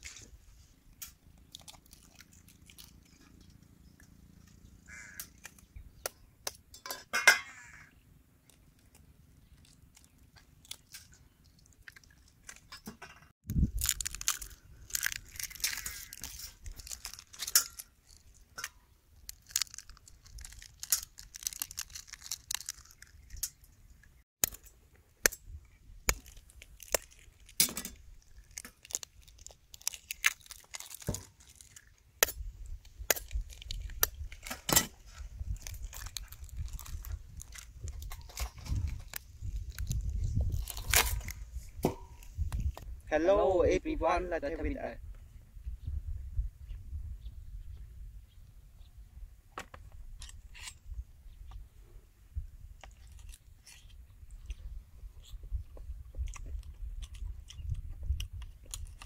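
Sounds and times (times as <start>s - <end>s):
egg shells cracking: 13.5s - 23.6s, 26.1s - 34.7s, 35.4s - 41.4s.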